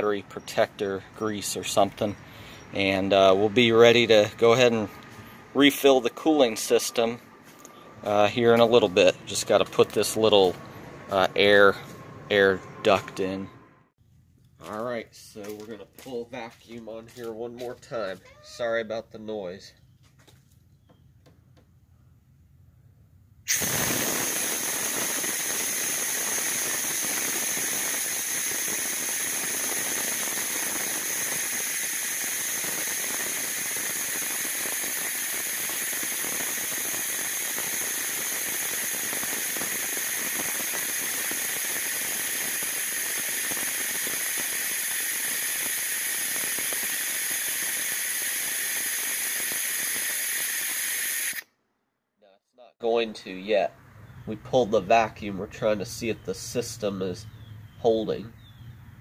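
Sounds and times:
compressed air hissing: 23.5 - 51.4.

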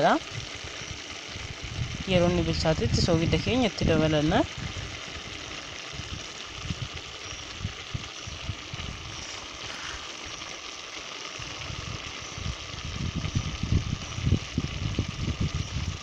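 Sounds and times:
pot simmering with hiss: 0.0 - 16.0.

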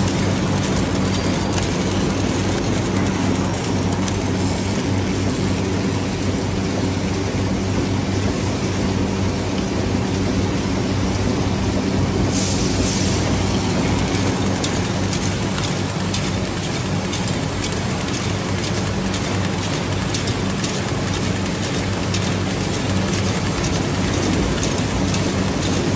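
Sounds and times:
machine hum and clatter: 0.0 - 25.9.

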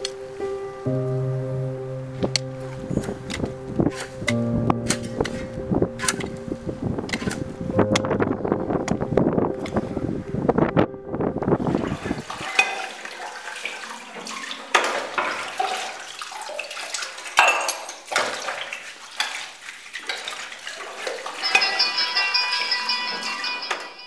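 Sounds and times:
water pouring into basin: 11.6 - 21.8
scrubbing dishes: 11.7 - 23.9
crockery clinking: 17.4 - 18.3, 21.0 - 24.0
phone electronic ringtone: 21.4 - 24.0.

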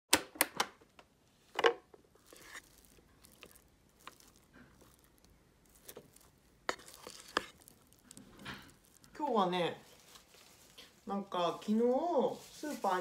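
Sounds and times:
rice paddle scraping rice: 2.2 - 5.0, 5.7 - 10.7.

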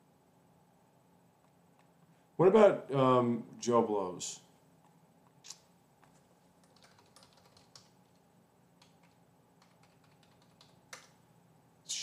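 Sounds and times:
faint keyboard typing: 4.8 - 11.2.

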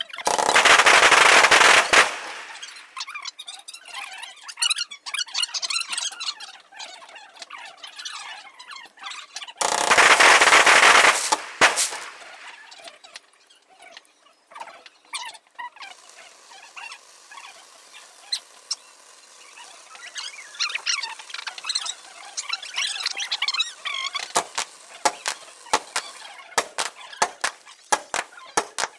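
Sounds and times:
high squeaky chirps and pops: 0.1 - 3.2, 9.6 - 12.7, 20.2 - 28.9
fireworks rushing and crackling: 0.2 - 3.0, 9.6 - 12.7, 17.0 - 28.9
sharp firework bang: 9.8 - 12.6.

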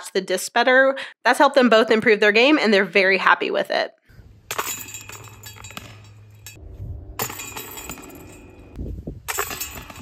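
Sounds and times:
discs clashing into metal chains: 4.5 - 6.6, 7.2 - 10.0.

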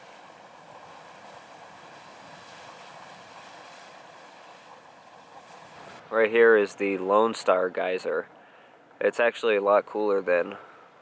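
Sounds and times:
geyser hissing steam and water: 0.0 - 8.1.

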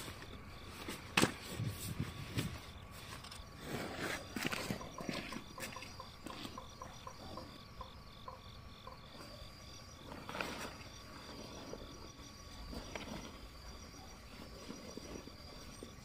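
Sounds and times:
insects buzzing: 0.0 - 16.0
insect pulsing chirp: 1.6 - 16.0.

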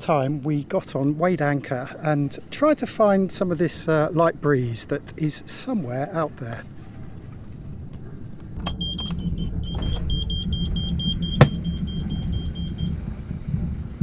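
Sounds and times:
diesel engine rumble: 7.6 - 14.0.

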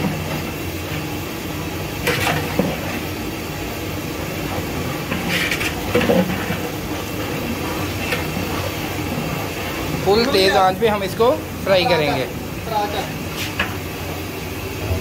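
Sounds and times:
onions sizzling in hot oil: 0.0 - 14.9
metal ladle scraping a pot: 5.1 - 6.6.

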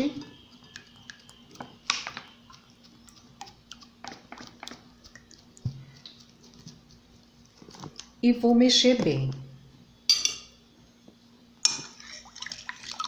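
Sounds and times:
faint steady hum: 0.0 - 13.0
liquid pouring into glass bowl: 11.8 - 13.0.

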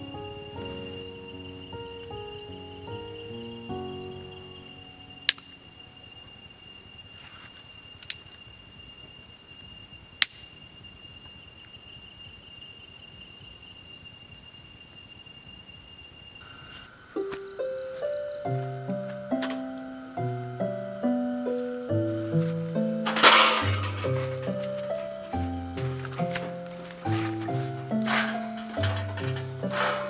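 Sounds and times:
music: 0.0 - 6.3, 17.2 - 30.0
insects trilling: 0.0 - 30.0.

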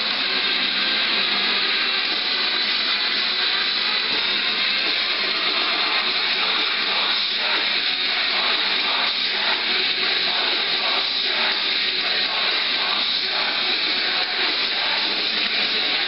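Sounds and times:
loud steady hiss from loudspeakers: 3.4 - 16.0.

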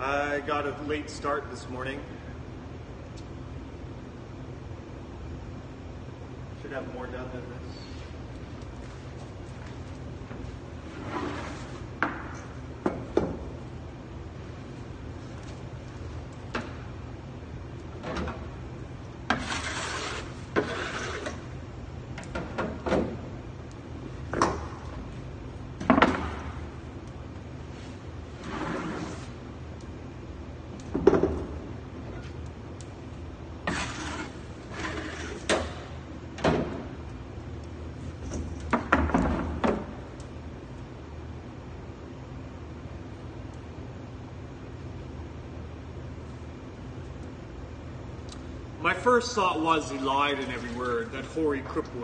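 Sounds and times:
steady low hum: 0.0 - 52.0
scraping strokes in oven: 10.8 - 11.9, 19.3 - 21.5, 27.6 - 29.4, 33.6 - 35.8.

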